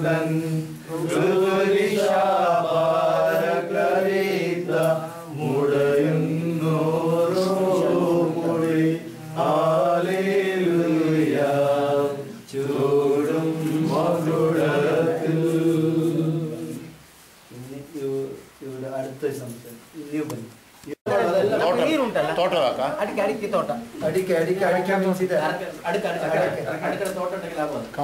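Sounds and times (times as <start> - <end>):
men chanting a hymn: 0.0 - 17.0.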